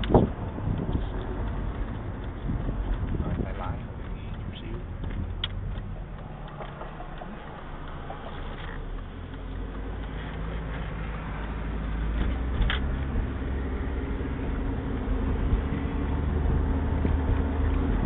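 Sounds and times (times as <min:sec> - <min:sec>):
wind noise: 0:00.0 - 0:07.4, 0:12.1 - 0:18.0
car engine hum: 0:00.0 - 0:18.0
road noise: 0:00.0 - 0:18.0.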